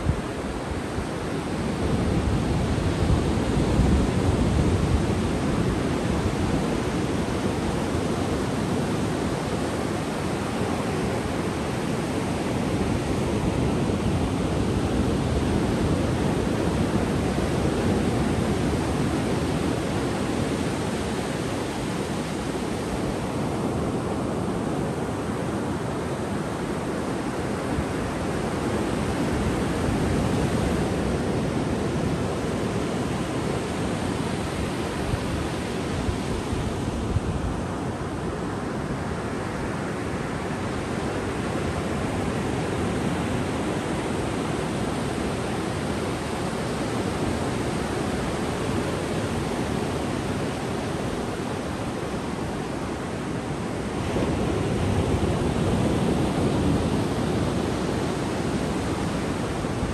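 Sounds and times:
ocean waves washing on beach: 0.0 - 59.9.

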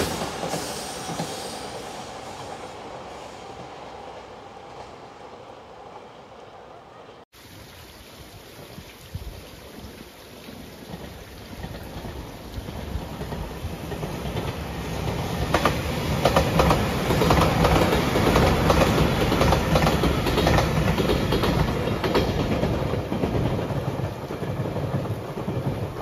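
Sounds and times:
electric train passing: 0.0 - 7.3, 11.6 - 26.0
wheels clicking over rail joints: 10.9 - 26.0.

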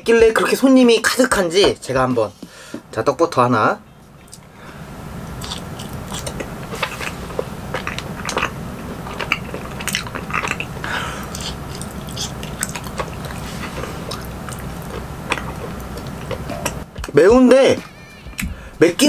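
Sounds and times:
person chewing: 4.0 - 4.5, 5.2 - 17.1.

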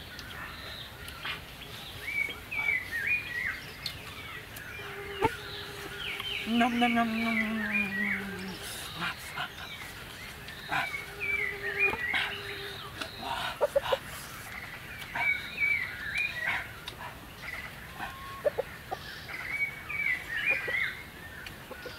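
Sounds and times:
birds chirping: 0.0 - 21.9.

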